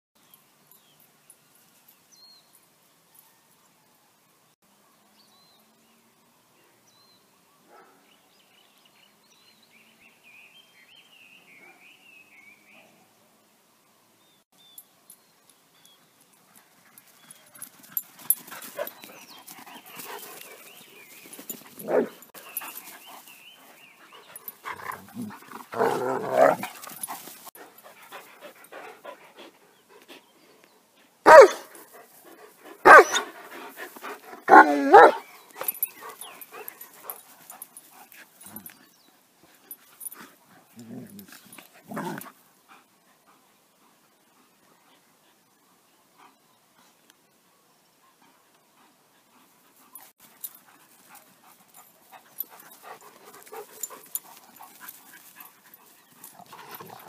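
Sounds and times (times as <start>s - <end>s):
dogs barking: 31.3s - 31.7s, 32.8s - 33.3s, 34.4s - 35.3s.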